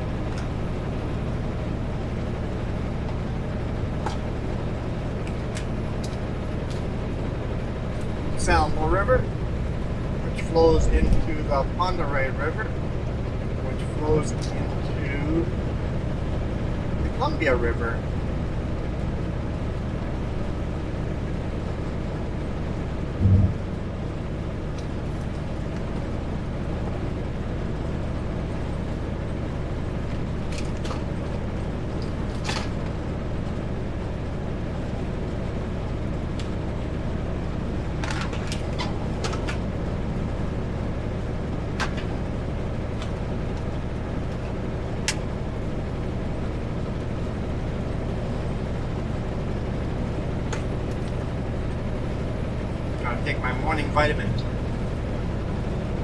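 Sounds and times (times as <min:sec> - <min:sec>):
diesel truck engine running: 0:00.0 - 0:56.0
road noise: 0:00.0 - 0:56.0
low thump: 0:23.2 - 0:23.7.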